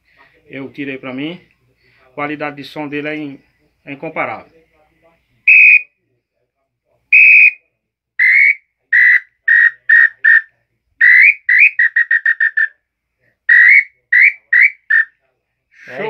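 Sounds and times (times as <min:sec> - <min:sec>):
bird call whistle notes: 0:05.5 - 0:05.8, 0:07.2 - 0:07.6, 0:08.2 - 0:12.7, 0:13.5 - 0:15.1.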